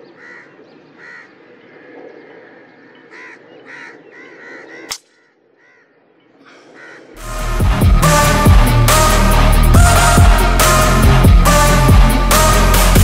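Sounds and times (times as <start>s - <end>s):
birds calling harshly: 0.0s - 7.2s.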